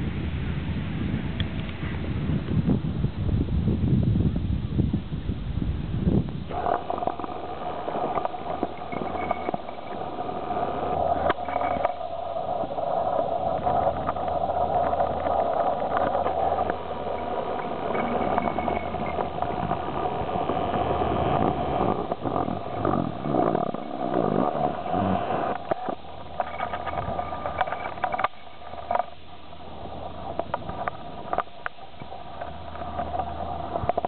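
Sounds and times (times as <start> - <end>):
steady engine drone: 6.3 - 34.0.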